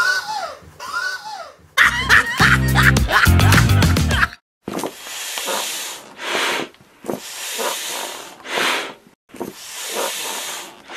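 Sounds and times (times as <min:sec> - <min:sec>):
foot pump air hissing: 0:04.8 - 0:10.9.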